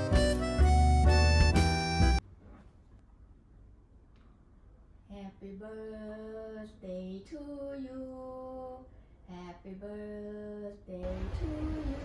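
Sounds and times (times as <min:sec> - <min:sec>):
woman singing slow melody: 0:05.1 - 0:12.0.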